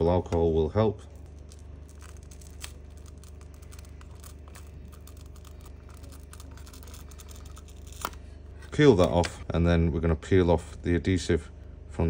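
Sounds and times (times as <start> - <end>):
steady low hum: 0.0 - 12.0
small clicks and scraping: 1.2 - 9.4.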